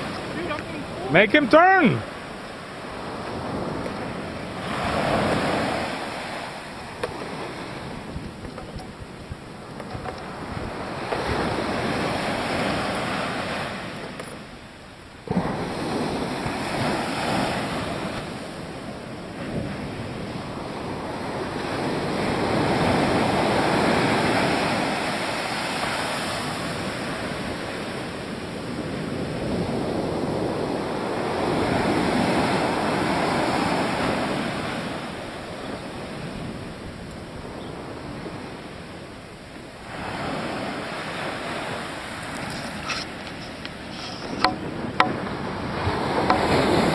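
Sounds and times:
wind rumbling on microphone: 0:00.0 - 0:01.2, 0:02.1 - 0:46.9
surf breaking on a beach: 0:00.0 - 0:46.9.

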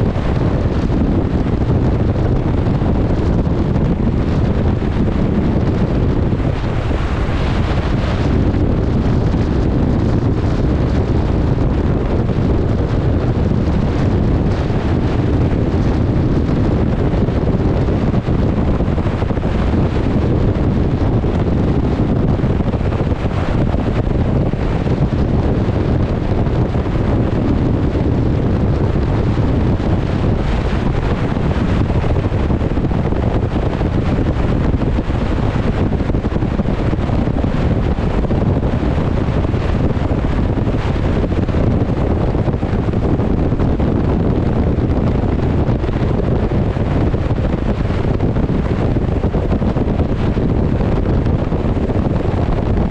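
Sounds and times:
choppy water wash: 0:00.0 - 0:52.9
wind buffeting microphone: 0:00.0 - 0:52.9.

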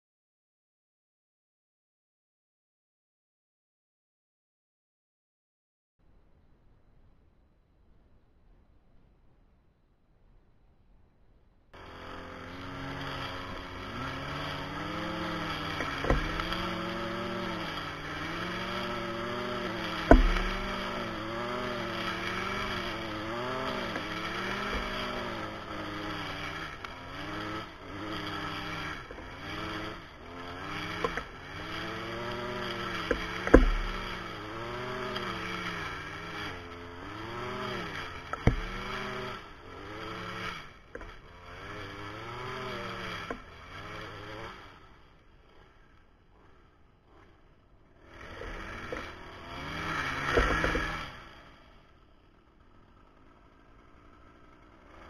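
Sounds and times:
brush cutter engine at high revs: 0:11.8 - 0:55.0
sharp knocks: 0:15.7 - 0:16.7, 0:19.8 - 0:21.0, 0:32.8 - 0:34.3, 0:38.3 - 0:39.1.

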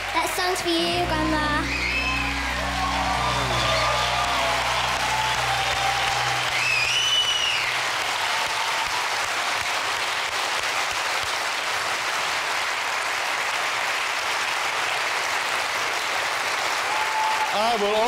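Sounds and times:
backing music: 0:00.0 - 0:07.8
audience applauding: 0:00.0 - 0:18.0.

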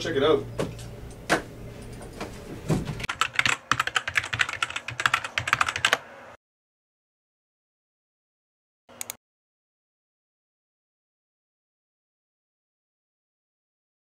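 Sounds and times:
typing on a keyboard: 0:03.1 - 0:06.0.

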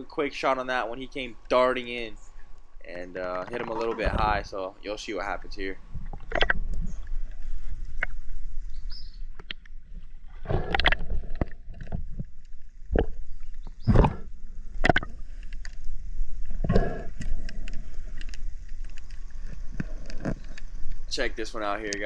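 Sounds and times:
underwater low rumble: 0:00.8 - 0:22.0
underwater knocks and bumps: 0:03.6 - 0:04.5.

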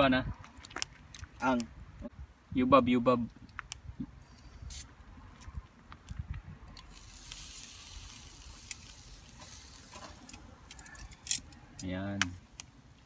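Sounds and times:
meat sizzling on grill: 0:06.8 - 0:11.0.

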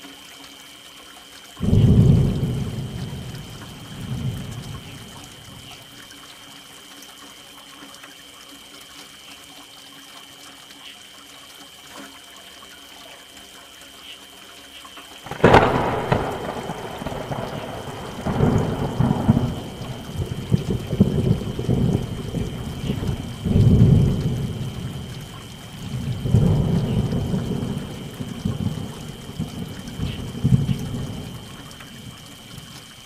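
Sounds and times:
steady rain falling: 0:00.0 - 0:33.0
thunderclap and rumble: 0:01.6 - 0:05.8, 0:15.3 - 0:32.8.

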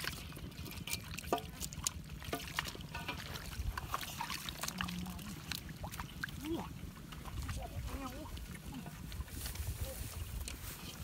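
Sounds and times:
water dribbling into basin: 0:00.0 - 0:09.3
bare feet squelching in mud: 0:00.0 - 0:11.0
water sloshing and splashing: 0:00.0 - 0:11.0.

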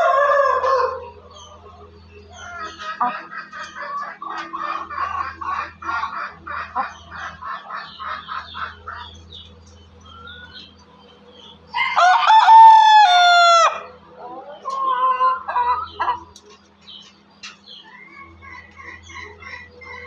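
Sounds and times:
rooster crowing: 0:00.0 - 0:01.4, 0:11.7 - 0:15.9
chickens clucking: 0:00.0 - 0:20.0.

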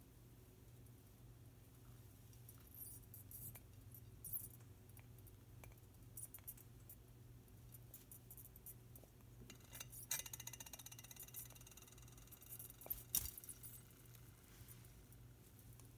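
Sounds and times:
beak pecking a glass bowl: 0:09.5 - 0:13.9.

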